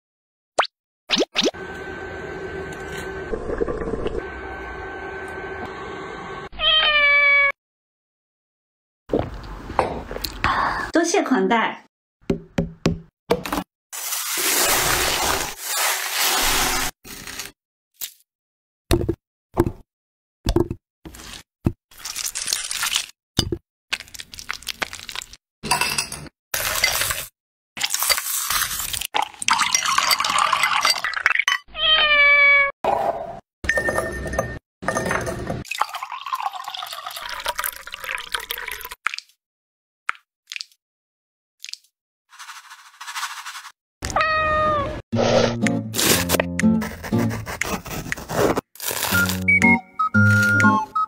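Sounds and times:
cat meowing: 6.5 - 7.6, 31.7 - 32.7, 44.1 - 45.0
knife crunching through watermelon: 21.1 - 23.1, 45.9 - 49.6
liquid pouring into a glass: 29.2 - 31.4, 35.7 - 39.0.

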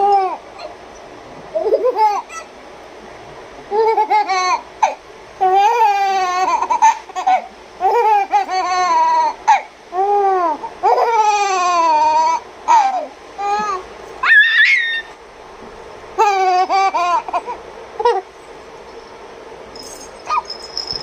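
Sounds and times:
baby squealing and laughing: 3.7 - 15.2, 20.2 - 20.6.

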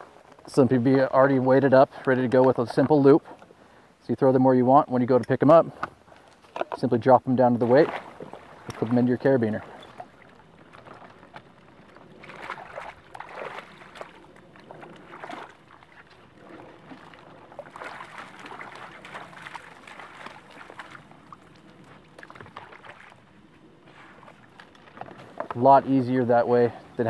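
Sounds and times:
water sloshing and splashing: 0.0 - 3.7, 5.0 - 27.0.

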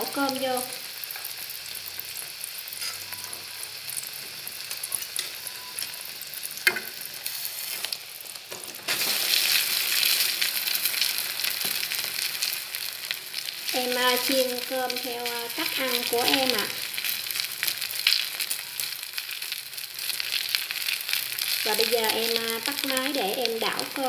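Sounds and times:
egg sizzling in pan: 0.0 - 24.0
rice sizzling in hot fat: 0.0 - 24.0.

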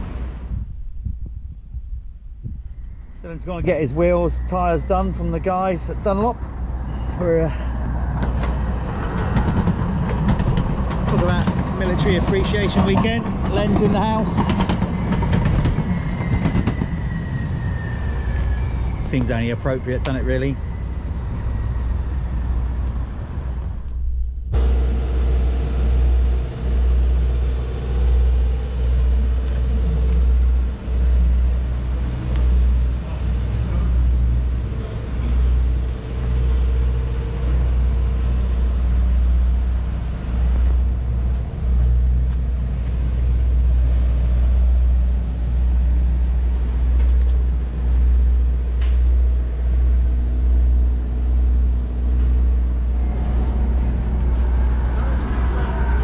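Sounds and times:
wind rumble on microphone: 0.0 - 5.2, 7.8 - 26.3.

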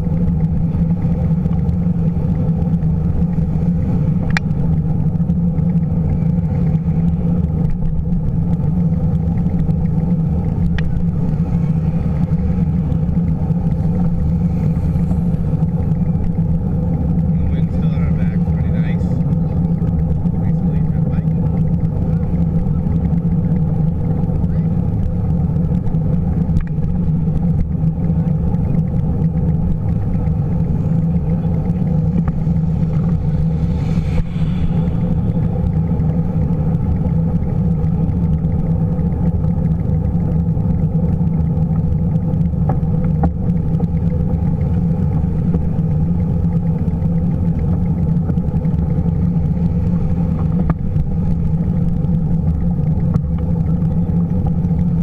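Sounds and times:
wind and road rumble: 0.0 - 55.0.

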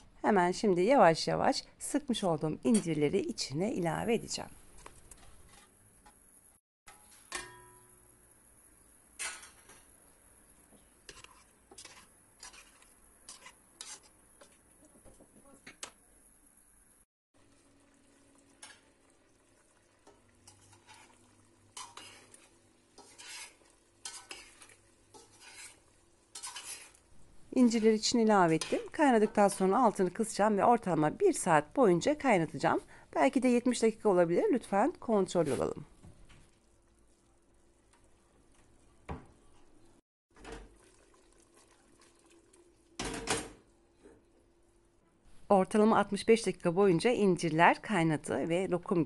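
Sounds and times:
pot clattering on hob: 6.9 - 7.9, 43.0 - 43.6
spoon scraping metal pot: 11.0 - 14.7, 20.1 - 29.7.

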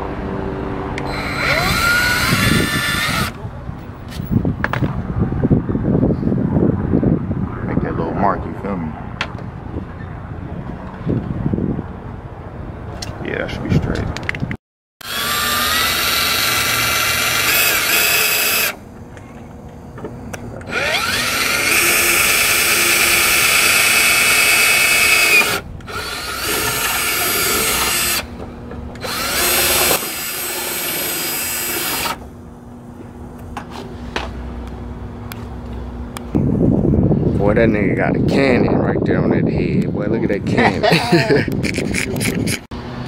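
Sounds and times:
cordless drill boring through plastic: 1.0 - 3.4, 15.0 - 18.8, 20.6 - 28.3, 29.0 - 32.2.

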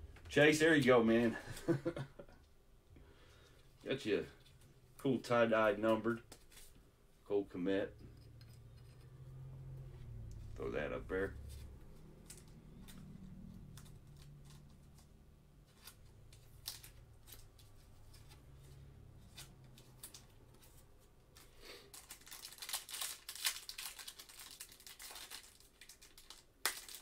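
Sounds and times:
plastic wrapper crinkling and tearing: 15.7 - 18.1, 21.3 - 27.0.

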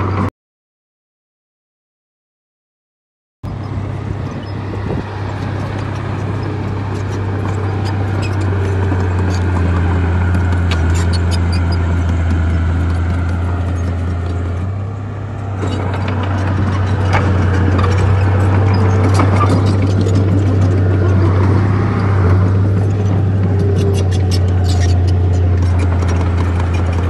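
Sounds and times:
bulldozer engine running: 3.5 - 27.0.

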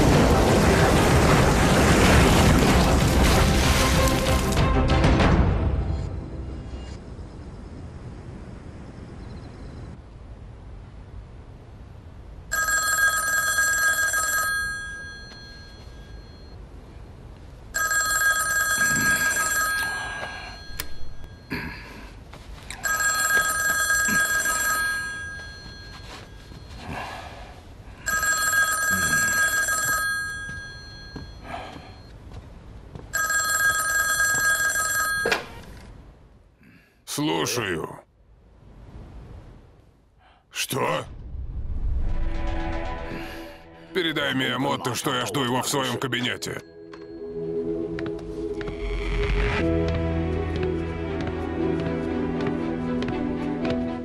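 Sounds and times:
telephone bell ringing: 12.5 - 16.6, 17.7 - 21.5, 22.8 - 26.8, 28.0 - 32.1, 33.1 - 35.8.

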